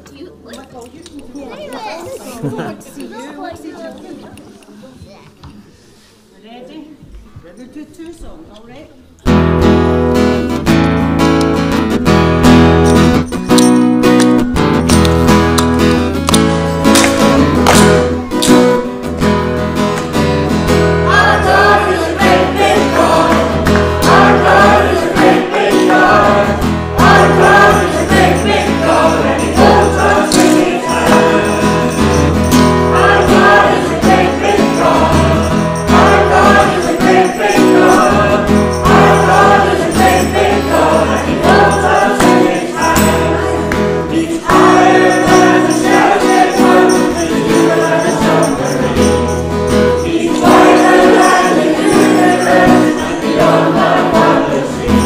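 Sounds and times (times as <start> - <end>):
strummed acoustic guitar: 9.2 - 55.0
children singing: 21.0 - 55.0.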